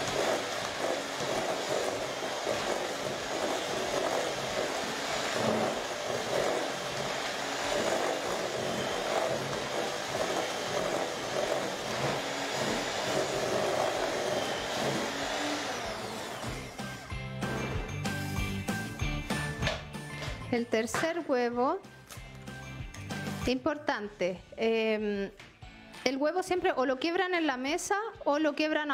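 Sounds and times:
electric hand mixer running: 0.0 - 19.2.

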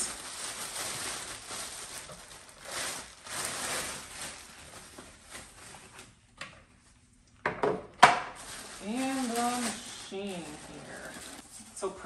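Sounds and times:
plastic wrap crinkling: 0.0 - 7.1, 8.1 - 12.0.

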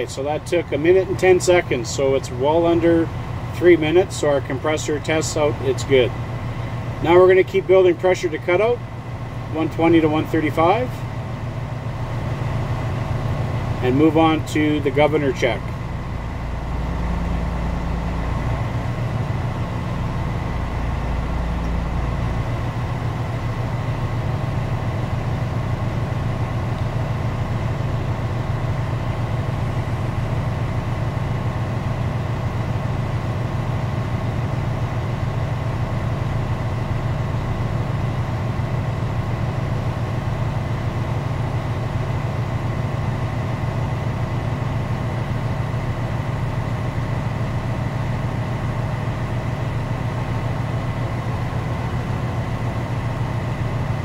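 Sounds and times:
truck diesel engine running: 0.0 - 54.0.

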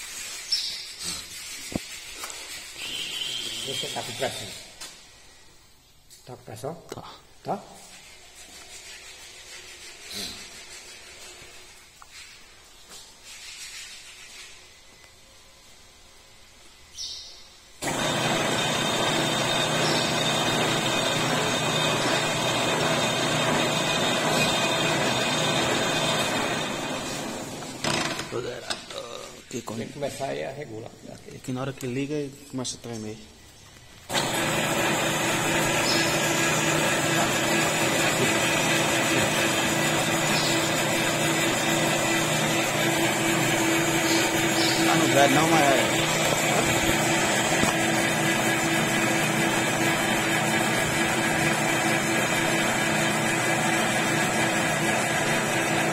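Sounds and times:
metal lathe motor humming: 17.8 - 28.2, 34.1 - 55.9.

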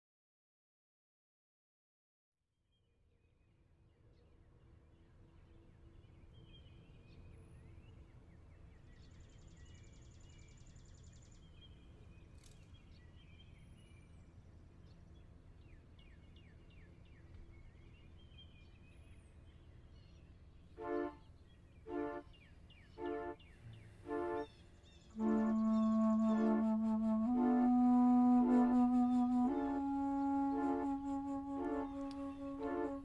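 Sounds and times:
birds chirping: 20.8 - 33.0
loud pitched music note: 23.0 - 23.4, 25.2 - 33.0.

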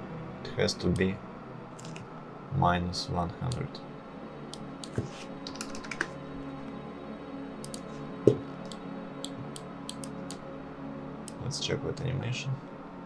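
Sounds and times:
computer keyboard typing: 5.4 - 6.0.

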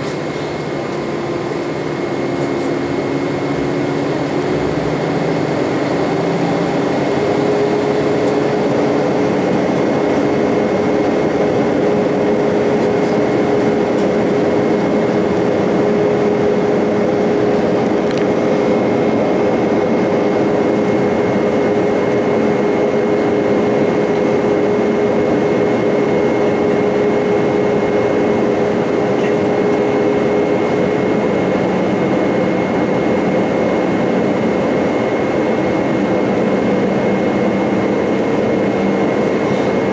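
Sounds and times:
constant cabin hum: 0.0 - 39.9
jet engines roaring: 0.0 - 39.9
rushing air: 0.0 - 39.9.

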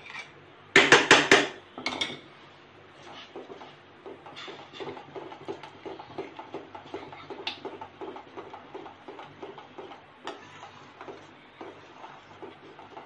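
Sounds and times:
spoon stirring thick milk: 3.0 - 13.0.

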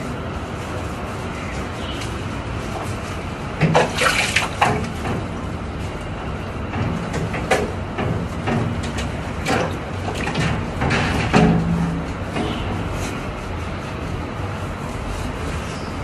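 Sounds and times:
water splashes and knocks: 3.6 - 5.4, 6.7 - 12.8.

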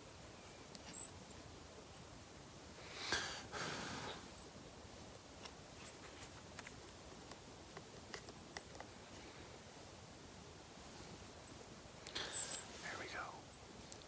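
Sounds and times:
light clicks and scratches: 5.4 - 9.0.

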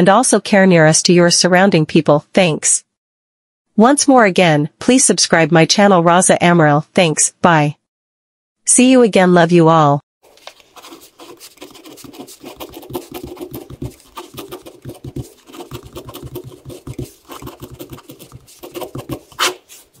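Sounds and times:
ballpoint pen scratching on paper: 10.4 - 20.0.

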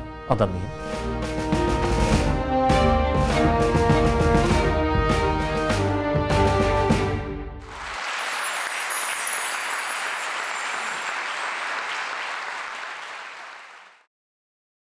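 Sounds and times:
audience applauding: 7.6 - 14.1.

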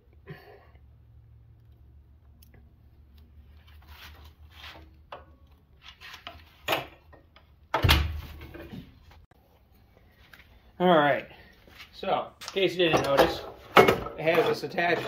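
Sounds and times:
handling rustles and knocks: 11.6 - 15.0.

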